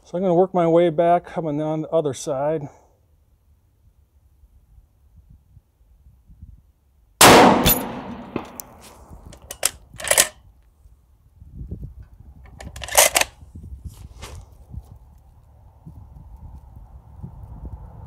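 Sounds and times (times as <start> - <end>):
rifle shot with echo: 7.2 - 8.9
sharp clicks: 7.6 - 10.4.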